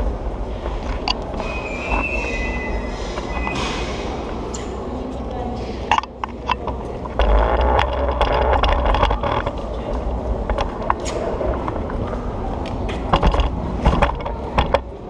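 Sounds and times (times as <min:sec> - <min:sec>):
scooter wheels rolling on stone: 0:06.0 - 0:12.1.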